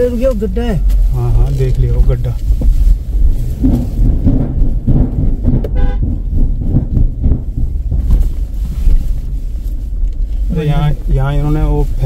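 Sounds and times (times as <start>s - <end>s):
vehicle rumbling over rough ground: 0.0s - 12.0s
car horn toot: 5.7s - 6.2s.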